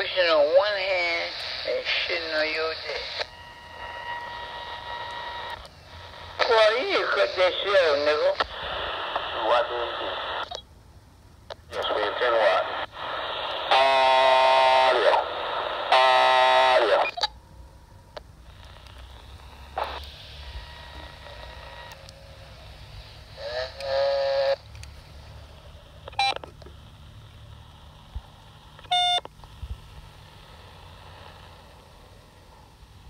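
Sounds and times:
buzzing radio tones: 0.0s - 10.6s, 11.8s - 17.3s, 18.4s - 26.5s
faint radio hiss: 0.0s - 33.0s
short beeps: 28.9s - 29.2s.

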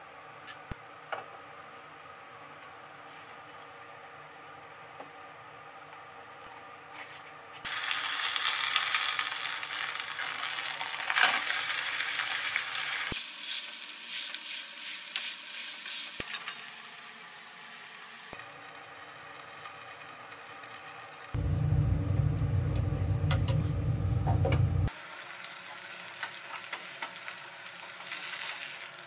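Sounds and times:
potato sizzling in frying pan: 7.7s - 22.6s, 24.9s - 29.0s.

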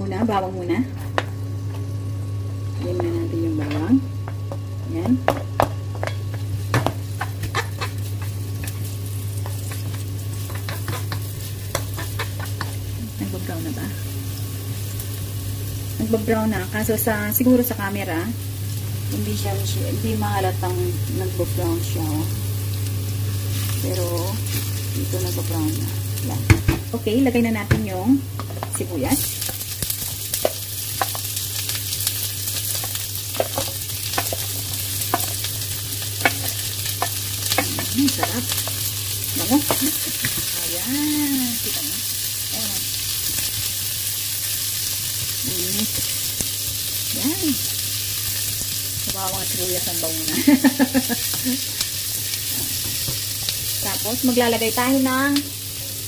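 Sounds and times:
garlic sizzling in hot oil: 0.0s - 56.0s
steady low hum: 0.0s - 56.0s
wooden spoon stirring and scraping: 7.2s - 12.8s.

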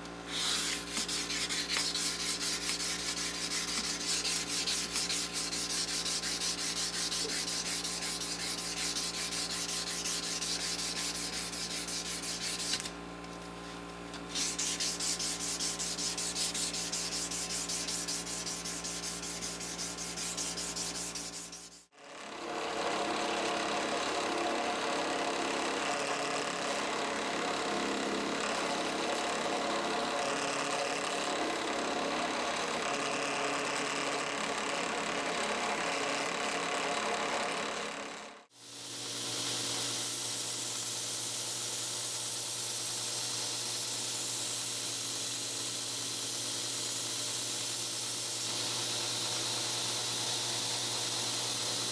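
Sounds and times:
drill press with buffing wheel: 0.0s - 12.9s, 14.2s - 51.9s
hand-sanding wood: 0.3s - 12.9s, 14.2s - 21.9s.

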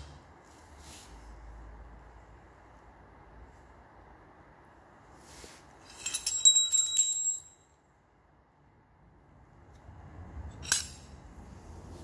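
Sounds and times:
metal engine parts clinking: 5.8s - 7.7s, 10.5s - 11.2s.

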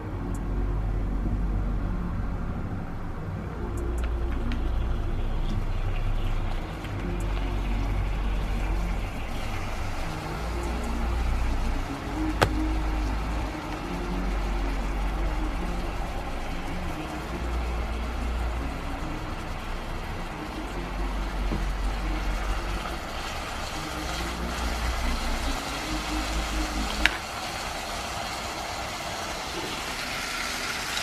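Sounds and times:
low background rumble: 0.0s - 30.5s.

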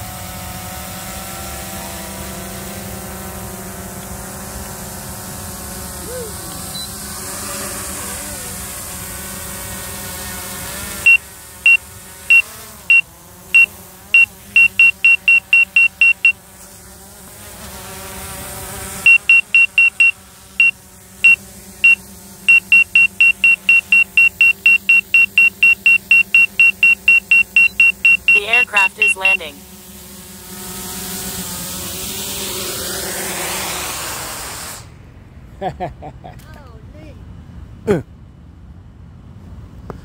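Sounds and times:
short high warning beeps: 11.1s - 13.0s, 13.6s - 16.4s, 19.1s - 20.7s, 21.3s - 29.6s.

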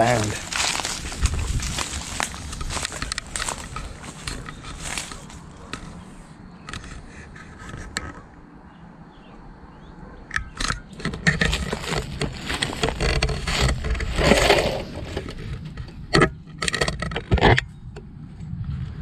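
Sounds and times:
footsteps: 0.0s - 6.2s, 11.1s - 15.6s
dry brush rustling and crackling: 0.0s - 8.0s, 11.0s - 16.0s.

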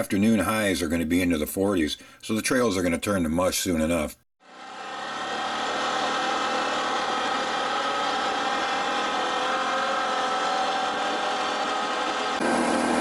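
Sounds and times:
off-road vehicle engine running: 6.4s - 13.0s.

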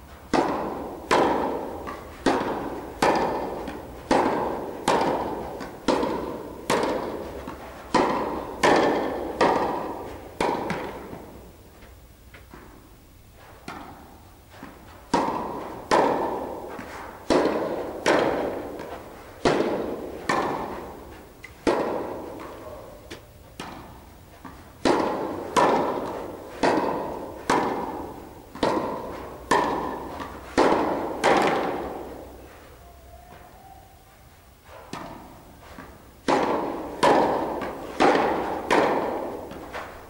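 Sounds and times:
tennis ball hit by rackets: 0.3s - 12.9s, 13.6s - 32.6s, 34.6s - 40.0s.

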